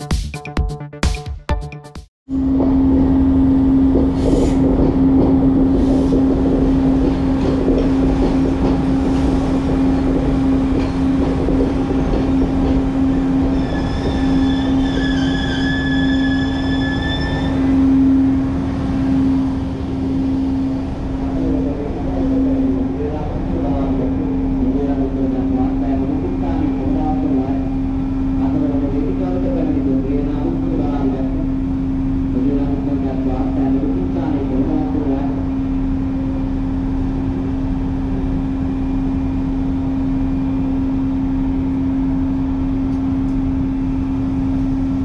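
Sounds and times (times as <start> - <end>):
steady train drone: 2.3 - 45.0
train wheels rumbling on track: 2.4 - 45.0
high metallic brake squeal: 13.5 - 17.7.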